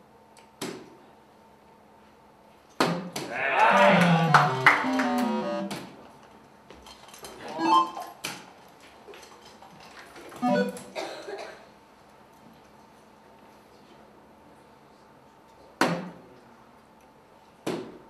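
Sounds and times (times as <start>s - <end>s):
short electronic sounds: 3.8s - 5.7s.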